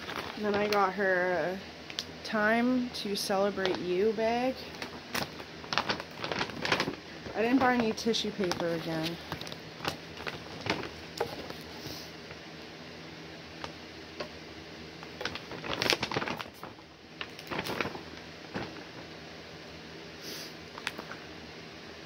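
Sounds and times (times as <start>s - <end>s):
packaging rustling: 0.0s - 0.9s, 4.6s - 11.8s, 15.0s - 19.2s.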